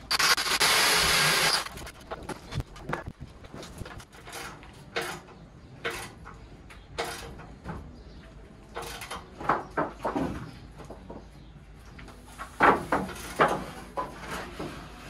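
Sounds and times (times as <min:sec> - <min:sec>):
boards scraping on wood: 0:12.4 - 0:15.0.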